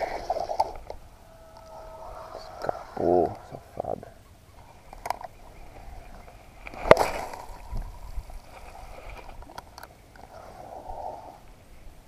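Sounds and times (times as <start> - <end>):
faint clicks: 0.4 - 1.8
sharp splash on water: 6.7 - 7.6.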